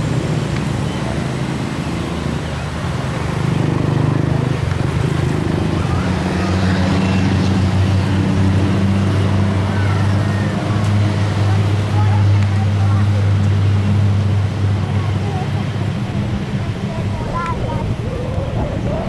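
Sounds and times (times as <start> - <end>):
turboprop engines droning: 4.3 - 19.0.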